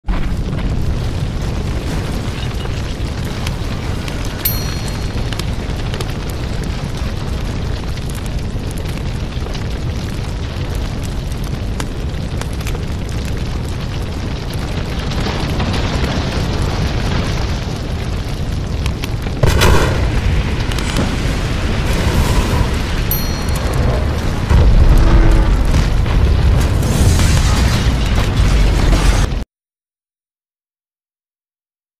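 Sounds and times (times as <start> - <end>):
deep rumble of blasts and fire: 0.0 - 29.4
loud explosion boom: 19.3 - 29.4.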